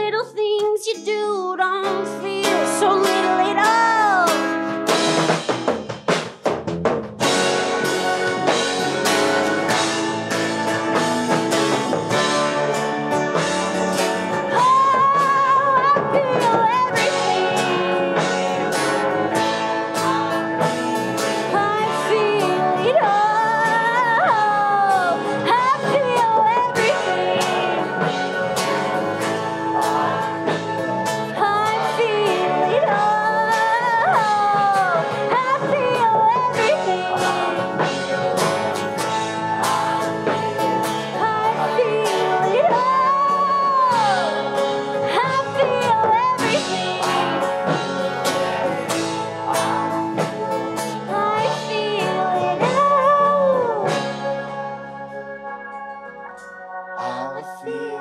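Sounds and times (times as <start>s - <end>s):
woman singing: 0.0s - 4.6s, 14.4s - 18.8s, 21.4s - 28.1s, 31.2s - 37.9s, 39.9s - 47.9s, 50.8s - 54.2s, 57.0s - 58.0s
live folk-rock band: 0.0s - 56.3s.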